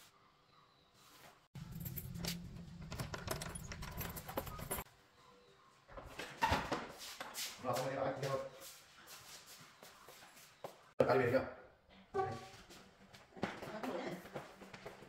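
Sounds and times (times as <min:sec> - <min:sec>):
keys jingling in door lock: 0:01.6 - 0:04.9.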